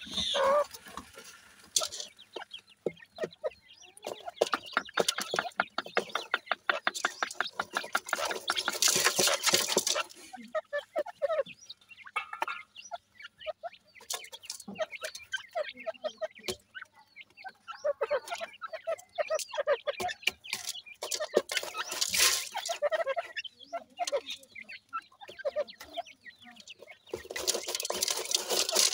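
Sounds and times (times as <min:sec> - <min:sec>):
gravel rattling by hand: 0:00.0 - 0:03.4, 0:04.0 - 0:10.6, 0:19.3 - 0:23.4, 0:25.3 - 0:28.9
chicks chirping: 0:00.0 - 0:28.9
hen clucking: 0:00.0 - 0:28.9
pecking clicks on gravel: 0:00.2 - 0:02.6, 0:04.0 - 0:10.2, 0:19.4 - 0:23.0, 0:26.5 - 0:28.9.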